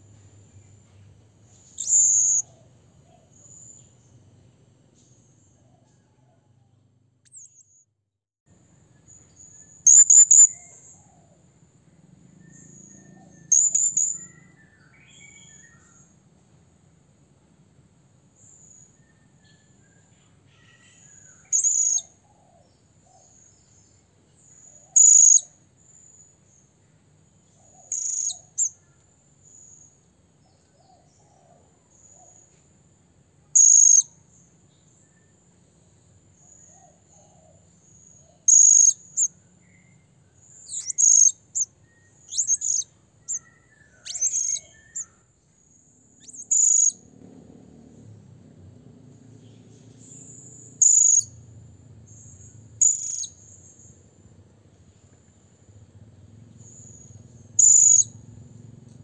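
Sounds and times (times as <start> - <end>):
parrot shrill calls: 1.8 - 2.4, 40.7 - 41.7, 42.3 - 45.1.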